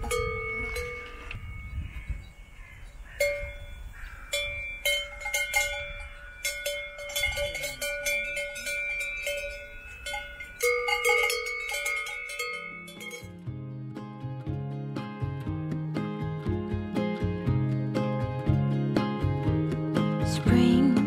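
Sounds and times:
cowbells clanking: 0:00.0 - 0:13.5.

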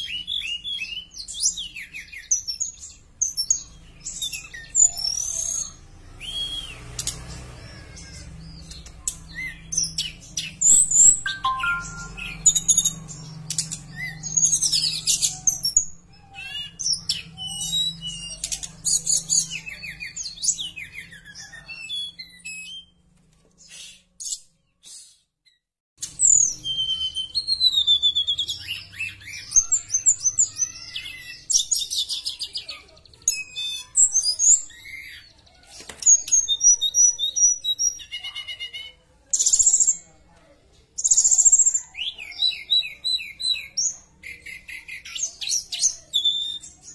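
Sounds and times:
bird singing whistles and trills: 0:06.2 - 0:06.8, 0:10.6 - 0:15.8, 0:26.2 - 0:29.8.

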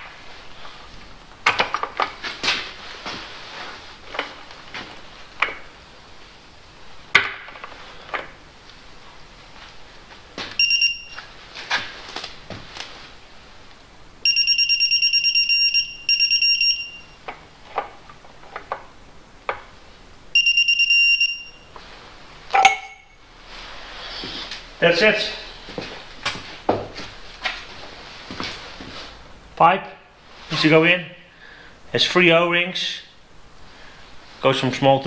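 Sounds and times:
torque wrench beeping: 0:10.6 - 0:11.2, 0:14.2 - 0:17.2, 0:20.4 - 0:21.6.

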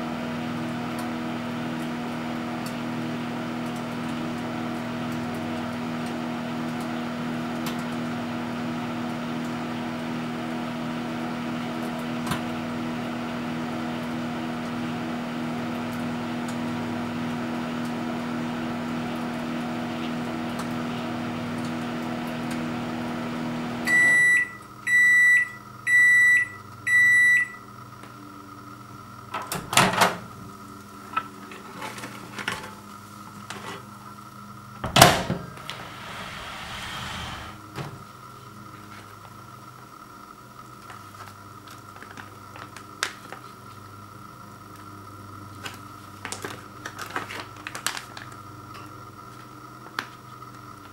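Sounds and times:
microwave oven humming: 0:00.0 - 0:50.9
microwave beeps: 0:23.8 - 0:27.8.

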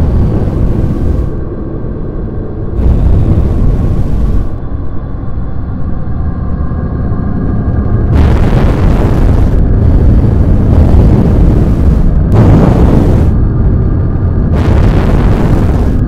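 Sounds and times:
harsh hissing noise: 0:00.0 - 0:01.4, 0:02.8 - 0:04.6, 0:08.1 - 0:13.4, 0:14.5 - 0:16.0
loud distorted low rumble: 0:00.0 - 0:16.0.

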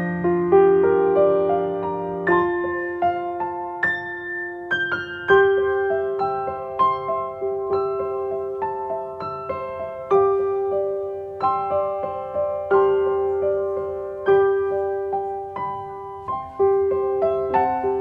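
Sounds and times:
soft piano music: 0:00.0 - 0:18.0.

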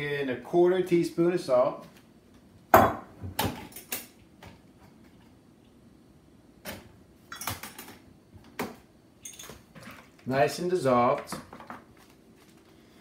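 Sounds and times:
glass jars knocking and clinking: 0:09.2 - 0:10.1.

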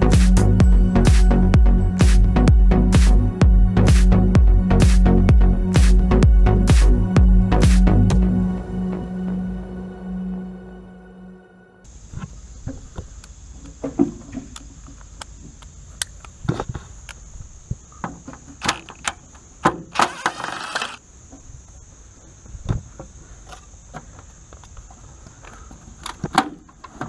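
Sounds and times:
handling clicks and knocks: 0:18.0 - 0:20.4
drill driving a screw: 0:19.9 - 0:21.0.

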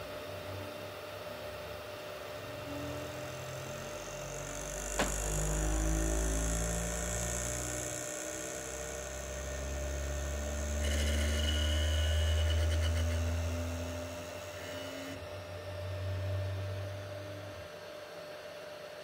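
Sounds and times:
steady hum: 0:00.0 - 0:18.7
stepper motors buzzing: 0:02.6 - 0:17.4.

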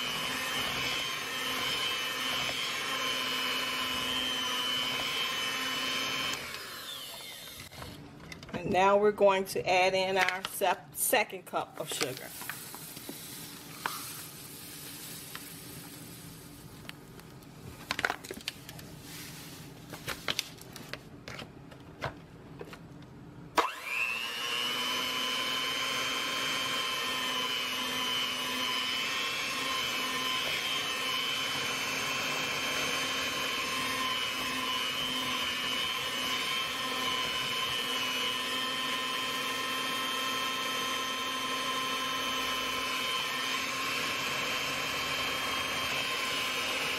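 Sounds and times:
electric hand mixer whining: 0:00.0 - 0:08.0, 0:23.6 - 0:46.9.

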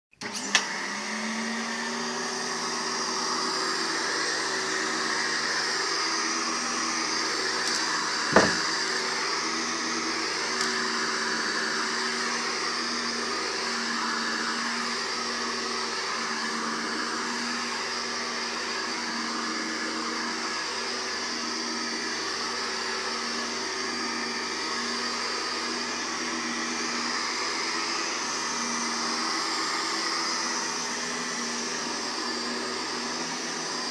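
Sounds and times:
vacuum cleaner running on carpet: 0:00.2 - 0:33.9
sharp knock: 0:08.3 - 0:08.6.

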